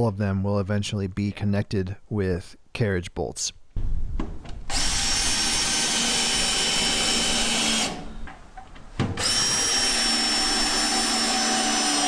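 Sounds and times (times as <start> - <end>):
power drill whining into wood: 4.7 - 8.2, 9.2 - 12.0.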